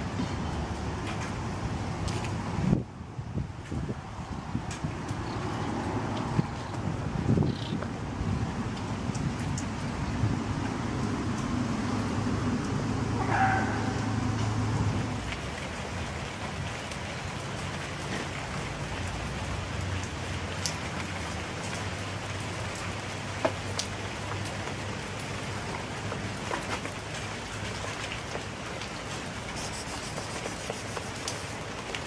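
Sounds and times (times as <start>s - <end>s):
rain falling on hard ground: 0.0s - 32.0s
sharp drip clicks: 8.7s - 9.9s, 10.6s - 11.6s, 12.5s - 13.0s, 19.0s - 24.8s, 28.0s - 32.0s.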